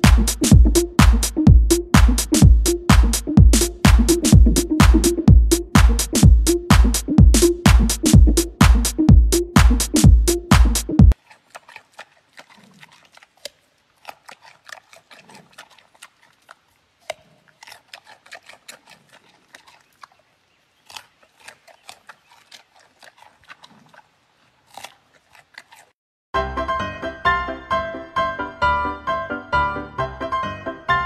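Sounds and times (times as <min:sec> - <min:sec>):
panda crunching carrot: 0:11.1 - 0:26.0.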